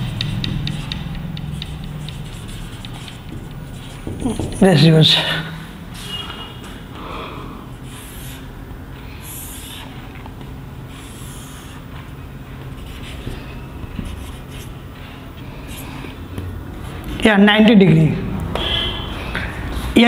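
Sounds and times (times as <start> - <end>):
marker squeaking on whiteboard: 0.0 - 5.0, 7.8 - 8.5, 9.1 - 10.3, 10.9 - 16.3.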